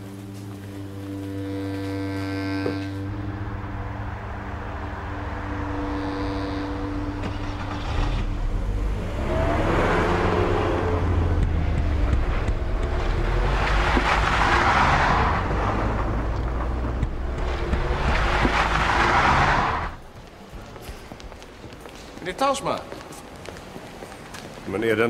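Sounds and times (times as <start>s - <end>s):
cars driving past: 2.6s - 21.6s.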